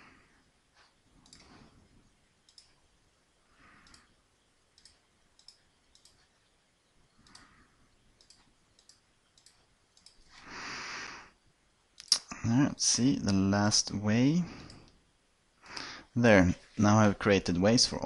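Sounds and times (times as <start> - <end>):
computer mouse clicks: 1.2 - 1.7, 2.4 - 2.8, 3.8 - 10.4.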